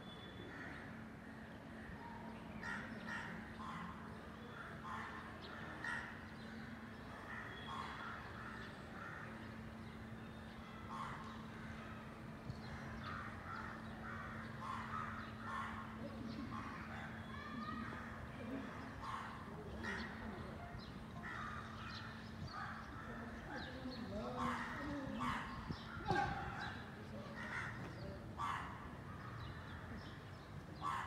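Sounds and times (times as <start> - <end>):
crows cawing: 7.2 - 9.5, 10.8 - 16.0, 21.2 - 22.2, 27.3 - 28.9, 30.8 - 31.0.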